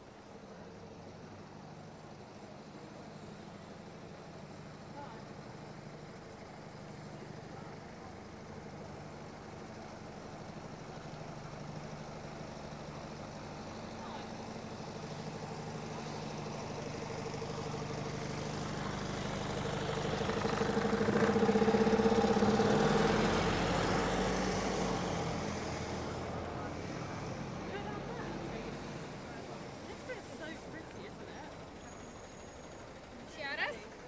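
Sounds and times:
vehicle engine passing by: 18.2s - 30.6s.

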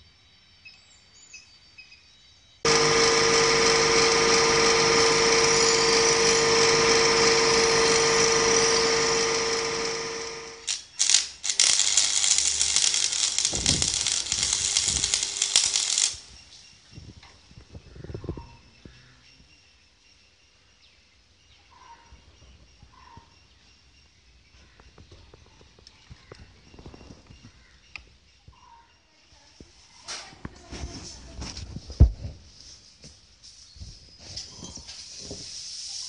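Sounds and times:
bench grinder grinding steel: 2.7s - 16.3s
arc welding crackle: 2.7s - 16.8s.

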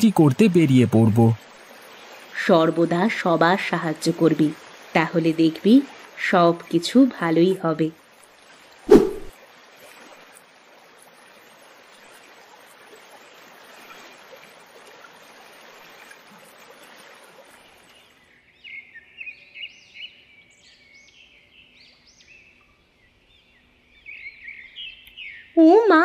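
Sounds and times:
flowing water: 0.0s - 18.4s.

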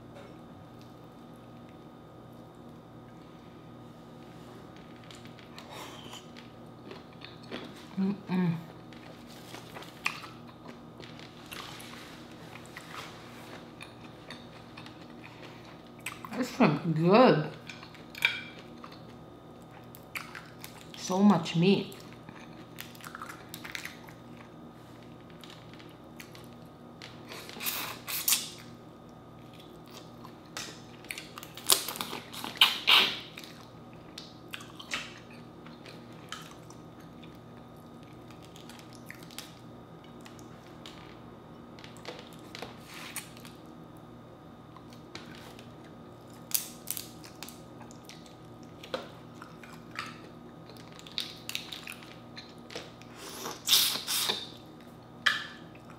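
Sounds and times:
faint steady hum: 0.0s - 55.9s
chewing: 8.9s - 16.3s, 17.6s - 21.0s, 22.0s - 28.7s, 29.4s - 41.2s, 44.8s - 55.9s
shells cracking and snapping: 46.3s - 52.9s.

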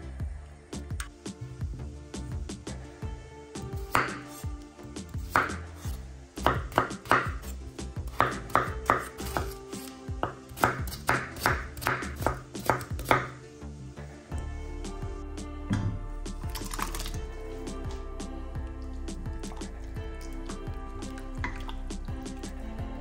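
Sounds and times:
knife chopping on cutting board: 3.9s - 4.4s, 5.2s - 7.5s, 8.1s - 13.4s.

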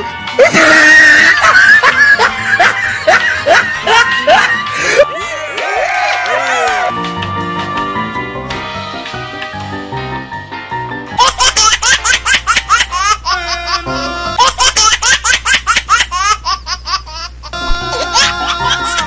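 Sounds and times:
background music: 0.0s - 14.5s, 17.6s - 19.0s
high-pitched giggling laughter: 0.4s - 5.4s, 11.2s - 19.0s.

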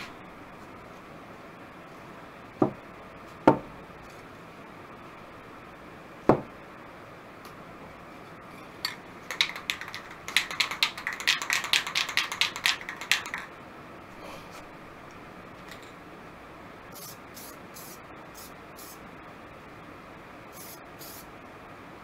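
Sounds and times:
spray paint can rattling: 8.9s - 13.5s.

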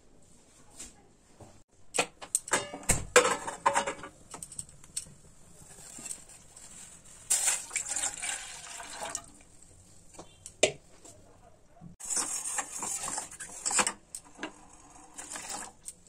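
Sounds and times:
kitchenware clicking and knocking: 1.9s - 4.6s.

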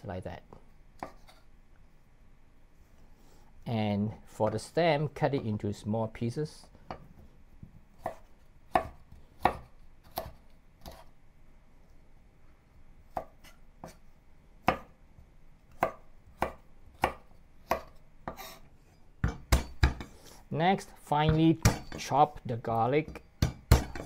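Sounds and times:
knife chopping on wooden board: 8.0s - 11.0s, 15.8s - 18.5s, 19.2s - 20.2s, 21.3s - 22.0s, 23.1s - 24.0s.

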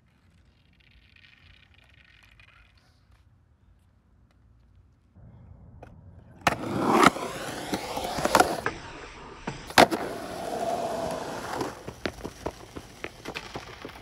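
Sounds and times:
skateboard wheels rumbling on concrete: 5.8s - 14.0s
skateboard slapping concrete: 6.5s - 14.0s.

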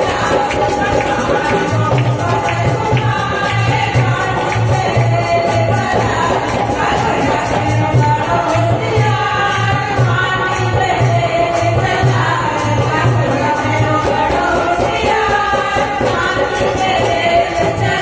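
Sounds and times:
hand-clapping: 0.0s - 6.4s
percussion beat: 0.0s - 18.0s
women singing into microphones: 0.0s - 18.0s.

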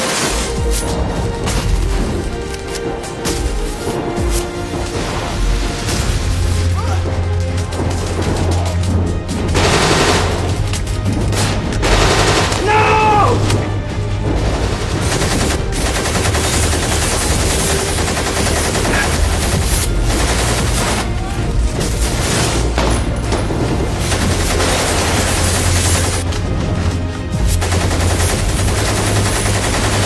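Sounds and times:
background music: 0.0s - 30.0s
rapid rifle gunfire: 7.6s - 12.9s, 14.2s - 21.1s, 24.0s - 26.2s, 27.4s - 30.0s.

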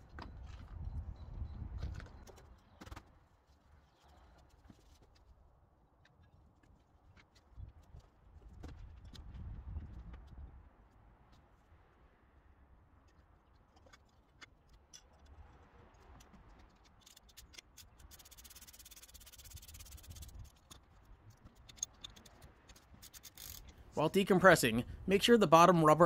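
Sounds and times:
ratchet wrench clicking: 16.9s - 20.8s, 21.6s - 23.8s.

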